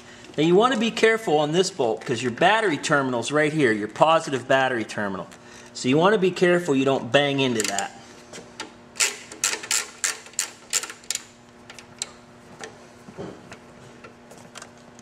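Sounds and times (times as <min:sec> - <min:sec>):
ratchet wrench clicking: 0:09.0 - 0:11.2.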